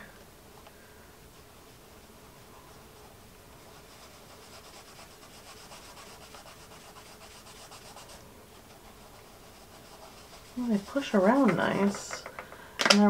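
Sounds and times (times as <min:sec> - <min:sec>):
fingertips scrubbing pastel on paper: 0:03.6 - 0:12.2.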